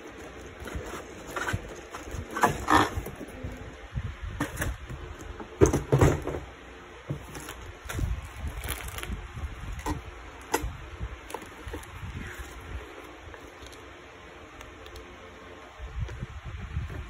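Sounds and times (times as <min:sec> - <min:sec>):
paper and plastic rustling: 0:00.0 - 0:03.7, 0:07.1 - 0:10.6, 0:11.2 - 0:13.9.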